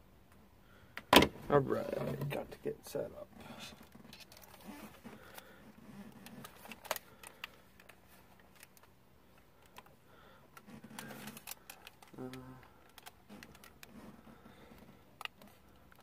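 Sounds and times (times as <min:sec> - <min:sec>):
plastic headset clicks: 0:14.7 - 0:16.0.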